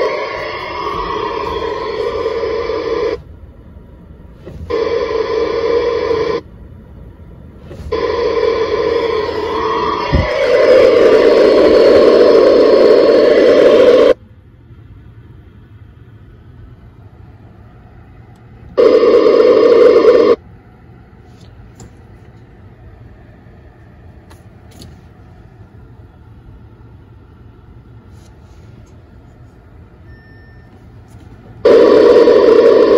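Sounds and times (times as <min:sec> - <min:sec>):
radio speaker hissing: 0:00.0 - 0:03.2, 0:04.4 - 0:06.4, 0:07.6 - 0:14.2, 0:18.7 - 0:20.4, 0:31.2 - 0:32.9.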